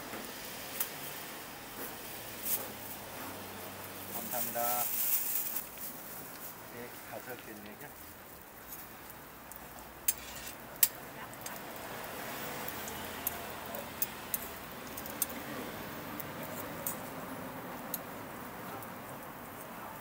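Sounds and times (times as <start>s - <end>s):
steady background hiss: 0.0s - 20.0s
metal tongs tapping steel griddle: 10.0s - 11.6s, 12.7s - 15.4s.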